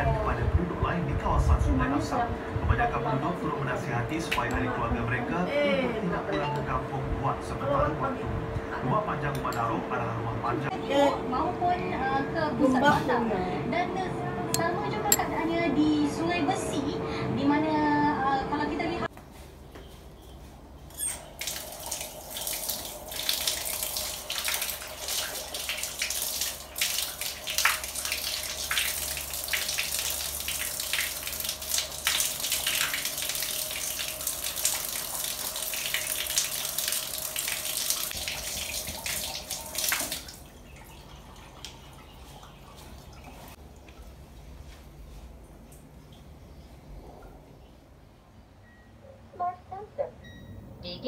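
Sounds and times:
tap water running and splashing: 21.1s - 44.8s.

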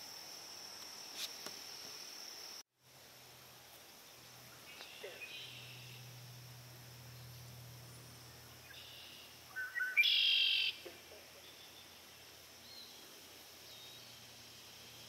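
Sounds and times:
bird singing with trill: 8.7s - 10.8s.

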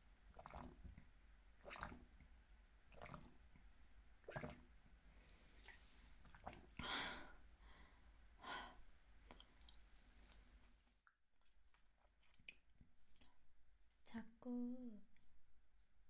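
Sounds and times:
swallowing water: 0.3s - 2.3s, 2.9s - 3.5s, 4.2s - 4.7s, 5.3s - 7.0s.

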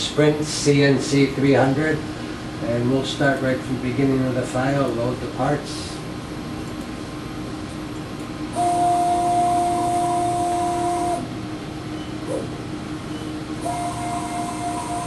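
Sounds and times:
low steady hum: 0.0s - 15.0s
motor whine with hiss: 8.5s - 15.0s.

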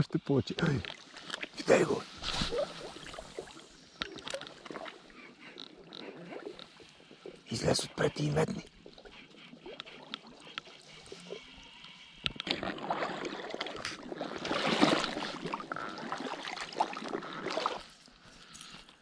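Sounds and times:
legs splashing through water: 0.8s - 7.4s, 12.4s - 18.1s.

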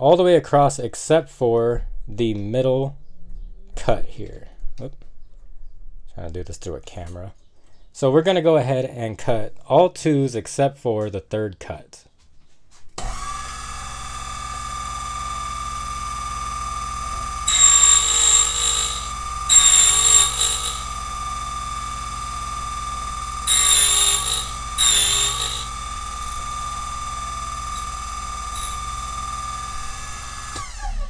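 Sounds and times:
cutter grinding key blank: 13.0s - 31.0s
key-cutting machine motor whine: 13.0s - 31.0s.

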